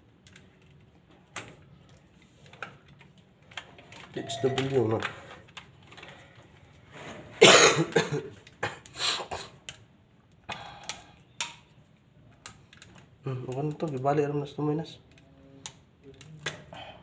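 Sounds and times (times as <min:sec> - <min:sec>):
person coughing: 0:07.4 - 0:09.5.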